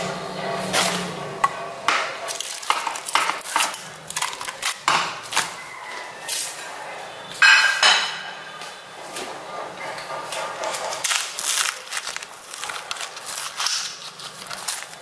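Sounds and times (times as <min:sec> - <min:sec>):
slime squishing and crackling: 0:02.2 - 0:05.7, 0:10.6 - 0:15.0.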